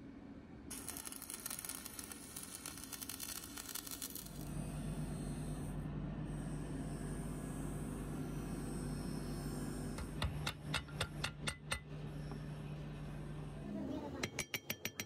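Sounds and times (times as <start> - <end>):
steady low hum: 0.0 - 14.4
welding arc crackling: 0.7 - 4.5.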